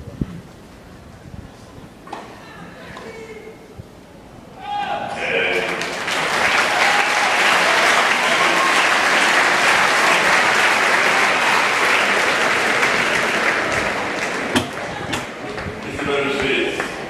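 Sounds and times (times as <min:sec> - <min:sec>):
crowd applauding: 0:05.2 - 0:17.0.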